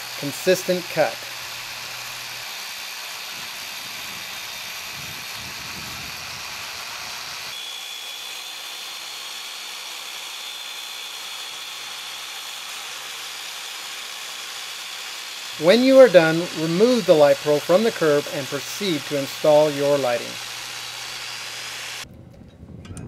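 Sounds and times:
electric saw grinding concrete: 0.0s - 22.1s
thin high whine: 15.6s - 23.0s.

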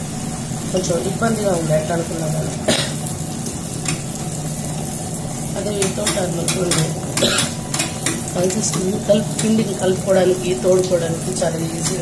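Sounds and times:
stone rollers churning batter: 3.5s - 12.0s.

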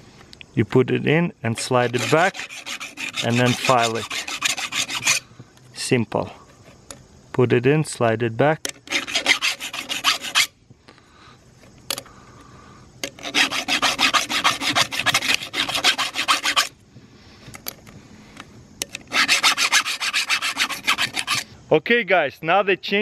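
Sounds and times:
file rasping on metal: 1.6s - 5.2s, 8.9s - 10.5s, 13.1s - 16.7s, 19.1s - 21.5s.

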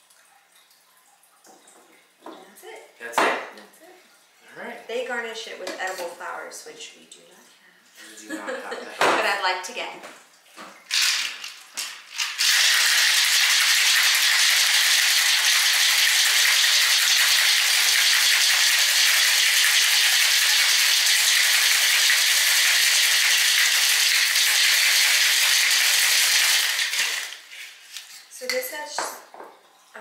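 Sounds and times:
ice rattling in cocktail shaker: 10.9s - 27.6s.

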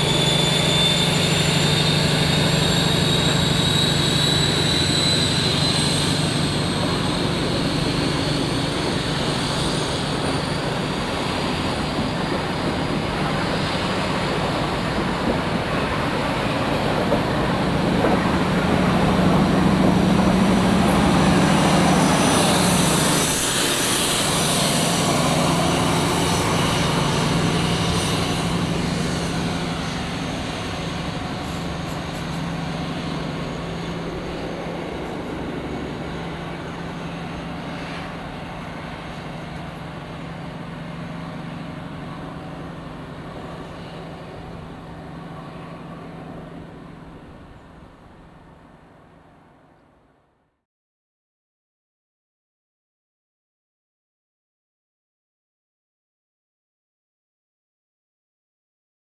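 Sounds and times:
high-pitched engine whine: 0.0s - 15.1s, 15.7s - 47.4s
rumble of train wheels: 0.0s - 50.2s.

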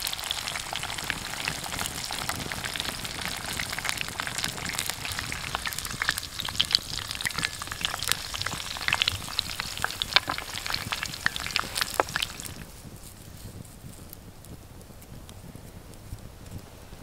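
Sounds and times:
chicken deep-frying in oil: 0.0s - 12.7s.

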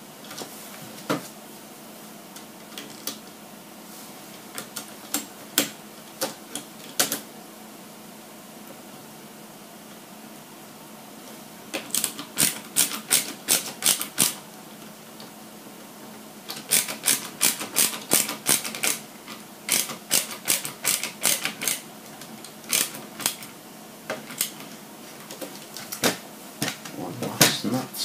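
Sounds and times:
sharp clicks from hand tools: 11.8s - 14.4s, 16.5s - 19.0s, 19.7s - 21.8s.

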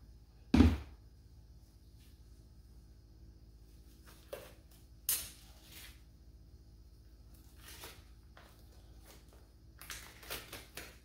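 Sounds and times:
low steady hum: 0.0s - 11.0s
rubber gloves rustling and snapping: 7.3s - 11.0s.

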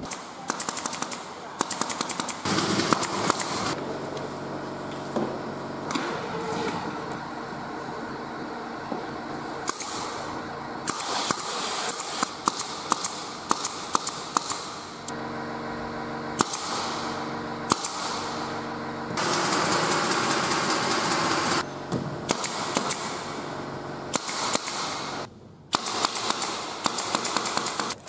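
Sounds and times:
nail gun firing into plywood: 0.0s - 3.8s, 9.7s - 10.2s, 10.9s - 14.8s, 16.4s - 17.0s, 17.7s - 18.2s, 19.2s - 21.6s, 22.2s - 23.3s, 24.1s - 28.0s
loud steady noise: 0.0s - 28.0s
mechanical hum: 0.0s - 28.0s.

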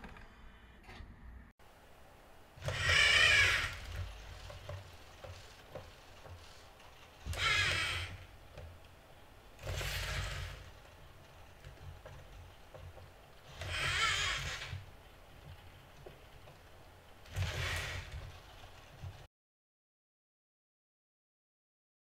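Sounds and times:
robot joint motors whirring: 2.5s - 19.3s.

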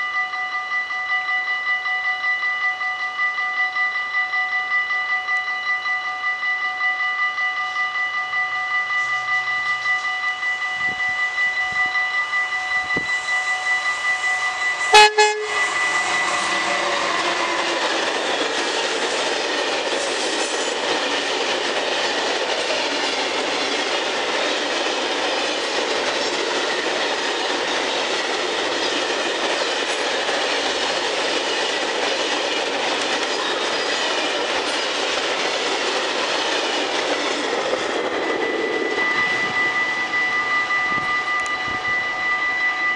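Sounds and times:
freight train running past: 0.0s - 42.9s
locomotive horn blast: 14.8s - 17.7s.

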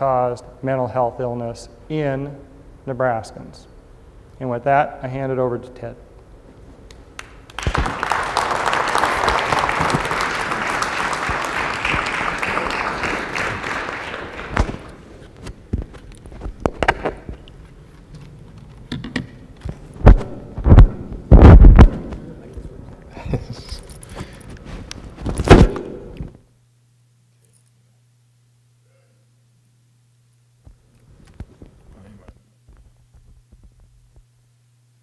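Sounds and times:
audience applauding: 7.2s - 15.1s
lapel microphone handling thumps: 14.6s - 17.4s, 19.6s - 22.2s, 30.6s - 34.3s.

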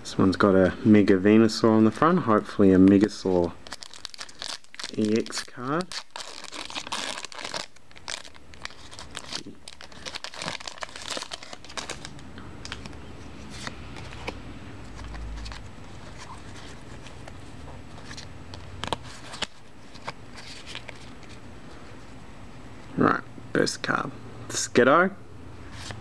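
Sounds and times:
cards rustling: 2.8s - 22.0s
foil wrapper crinkling and tearing: 3.6s - 12.9s, 18.0s - 21.1s.

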